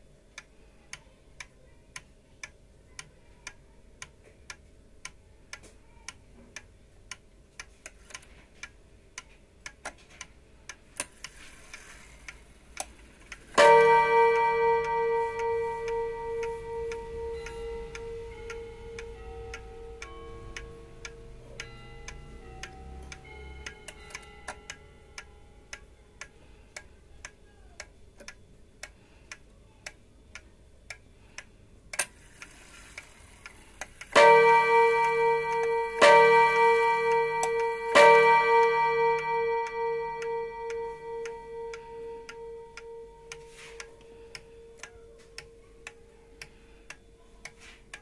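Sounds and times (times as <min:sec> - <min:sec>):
clock ticking: 0:00.0 - 0:48.0
clock click: 0:00.3 - 0:48.0
clock bell strikes: 0:13.6 - 0:25.7, 0:34.1 - 0:43.9.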